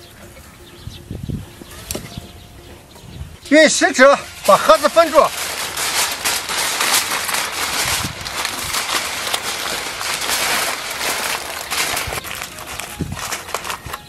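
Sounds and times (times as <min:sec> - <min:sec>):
aluminium foil crinkling: 0:04.0 - 0:14.0.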